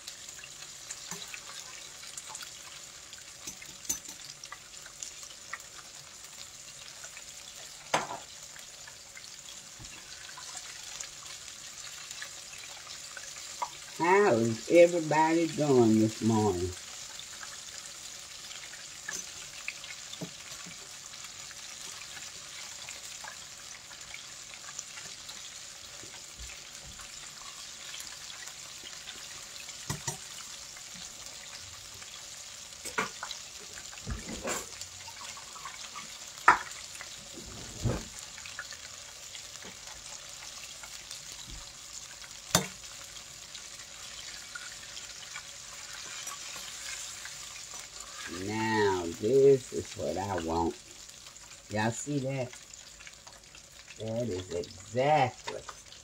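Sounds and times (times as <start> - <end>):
chicken deep-frying in oil: 0.0 - 56.0
metal spoon clinking on pot: 3.4 - 4.2.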